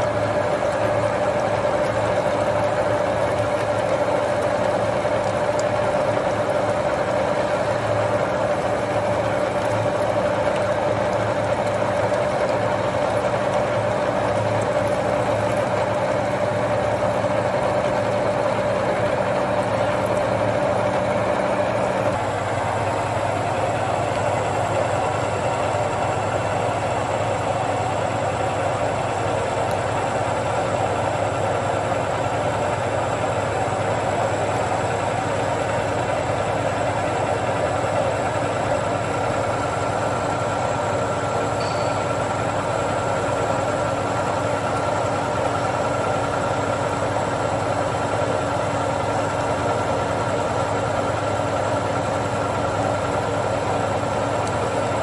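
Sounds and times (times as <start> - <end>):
machine hum: 0.0 - 49.1
constant machine whine: 0.0 - 55.0
milling machine cutting steel: 38.7 - 46.2.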